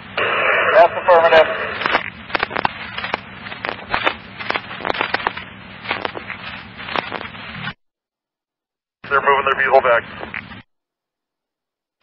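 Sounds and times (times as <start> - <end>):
radio static hiss: 0.0 - 7.8, 9.0 - 10.6
static crackles: 0.0 - 7.8, 9.1 - 10.6.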